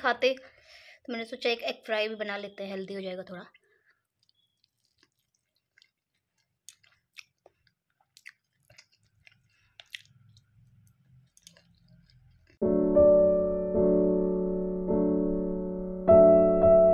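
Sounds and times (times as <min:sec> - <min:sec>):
person chewing soft food: 0:03.5 - 0:12.6
piano music: 0:12.6 - 0:16.9.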